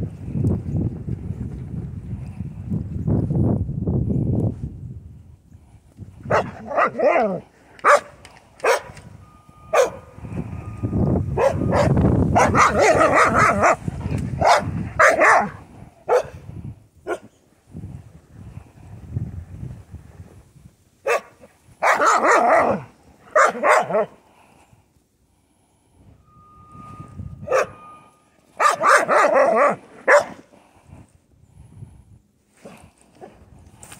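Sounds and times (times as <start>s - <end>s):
dog barking and yipping: 6.3s - 9.0s, 9.7s - 10.0s, 11.4s - 13.8s, 14.4s - 16.4s, 21.0s - 24.1s, 27.5s - 27.8s, 28.6s - 30.4s.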